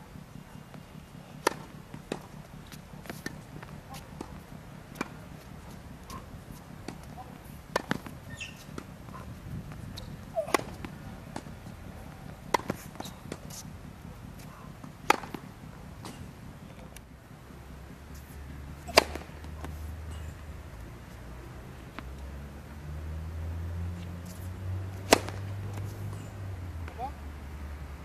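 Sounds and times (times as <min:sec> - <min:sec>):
steady low hum: 0:00.0 - 0:28.0
ball bouncing on hard court: 0:01.4 - 0:05.2, 0:06.8 - 0:11.6, 0:12.2 - 0:13.6, 0:14.4 - 0:16.2, 0:18.9 - 0:19.8
tennis ball struck by rackets: 0:01.4 - 0:13.7, 0:14.3 - 0:16.4, 0:18.6 - 0:20.3, 0:24.2 - 0:26.2.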